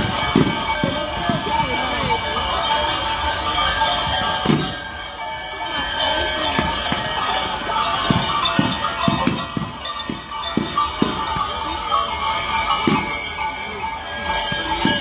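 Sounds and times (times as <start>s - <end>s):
large cowbells clanging: 0.0s - 15.0s.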